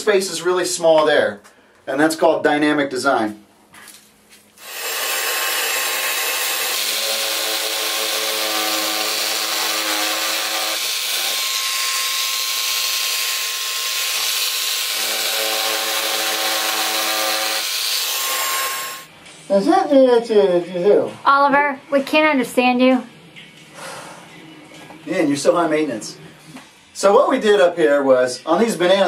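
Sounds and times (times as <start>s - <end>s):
power tool carving foam board: 4.6s - 19.1s.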